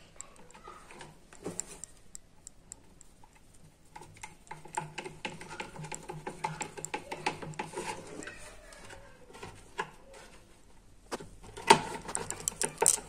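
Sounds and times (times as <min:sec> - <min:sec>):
screwdriver turning a screw: 0:12.0 - 0:13.0.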